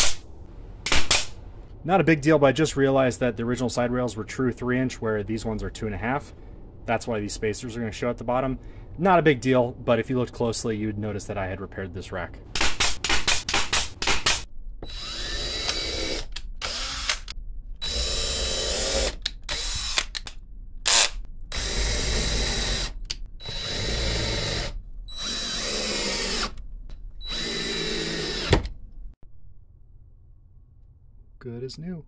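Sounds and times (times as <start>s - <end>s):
nail gun shots: 0.9s - 1.4s, 12.6s - 14.4s
cordless drill driving screws: 14.8s - 20.2s, 20.9s - 26.6s, 27.2s - 28.7s.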